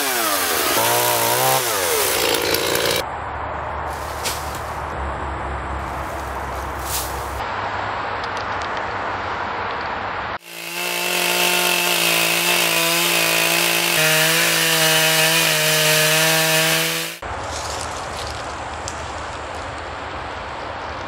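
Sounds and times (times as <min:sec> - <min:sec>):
chainsaw cutting wood: 0:00.0 - 0:03.0, 0:10.4 - 0:17.2
shovel scraping and knocking: 0:03.9 - 0:04.8, 0:05.9 - 0:07.4.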